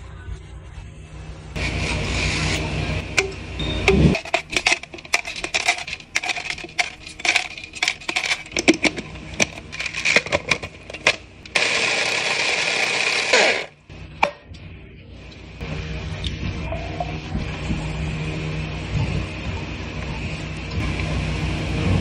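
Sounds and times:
ice cubes clinking into plastic cup: 4.1 - 13.7
blender motor crushing ice: 4.1 - 13.8
blender clicks: 4.2 - 13.8.

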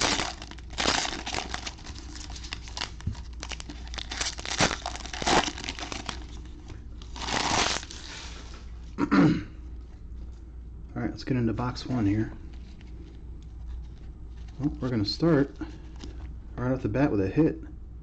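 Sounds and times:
foil wrapping crinkling and tearing: 0.0 - 8.6.

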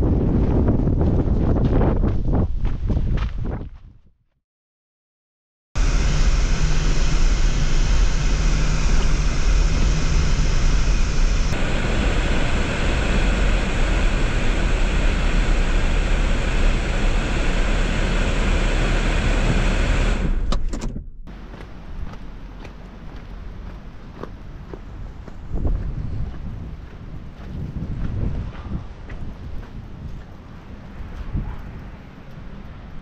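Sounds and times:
car engine and road noise: 5.8 - 26.0.

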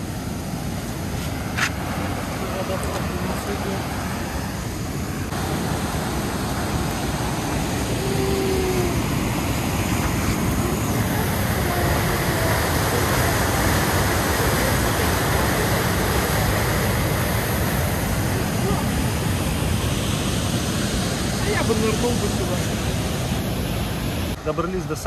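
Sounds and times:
waterfall rushing: 0.0 - 24.7.

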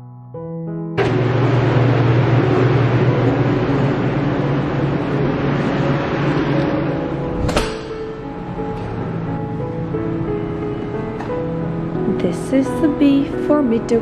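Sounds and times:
machine running with rushing noise: 1.0 - 10.9
sharp click: 7.4 - 8.0.

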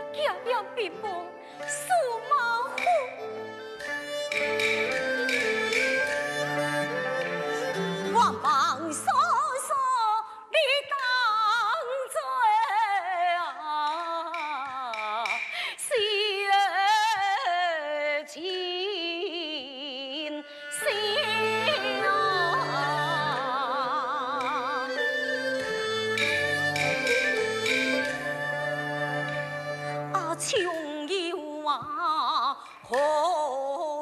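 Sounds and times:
traditional instrumental accompaniment: 0.0 - 9.7, 20.4 - 33.8
woman singing with vibrato: 8.0 - 25.5, 30.0 - 34.0.

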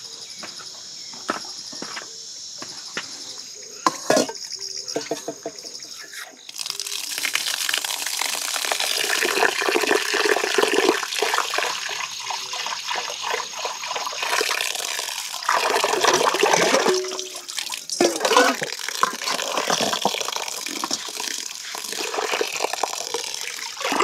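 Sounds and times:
tap water running into strainer: 5.0 - 24.0
water pouring off rice: 6.4 - 24.0.

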